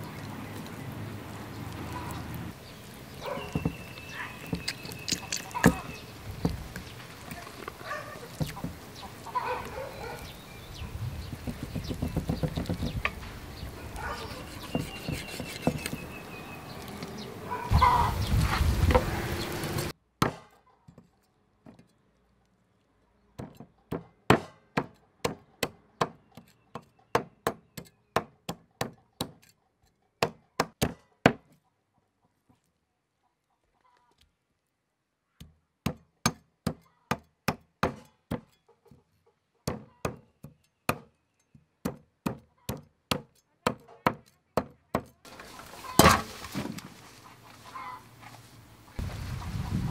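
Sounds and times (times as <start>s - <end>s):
cleaver chopping on wooden board: 11.3s - 13.2s, 14.2s - 16.1s, 20.2s - 20.5s, 23.4s - 29.4s, 30.2s - 31.5s, 35.4s - 38.5s, 39.6s - 41.1s, 41.8s - 45.1s.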